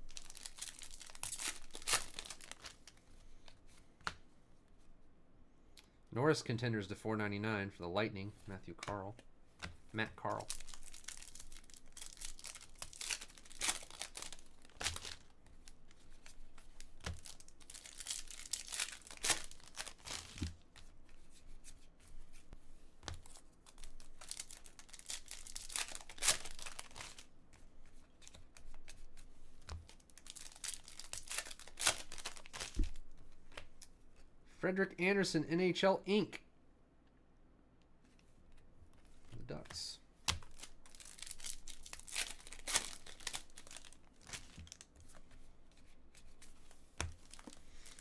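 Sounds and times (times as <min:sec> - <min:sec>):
foil wrappers tearing and crinkling: 0:00.0 - 0:03.0, 0:10.2 - 0:20.7, 0:23.2 - 0:27.3, 0:29.9 - 0:33.0, 0:40.4 - 0:44.9, 0:47.1 - 0:48.0
cards being handled: 0:00.1 - 0:04.3, 0:08.4 - 0:34.3, 0:38.0 - 0:48.0.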